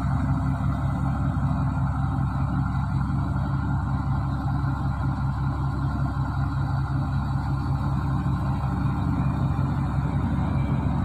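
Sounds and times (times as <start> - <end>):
bulldozer diesel engine running: 0.0 - 11.0.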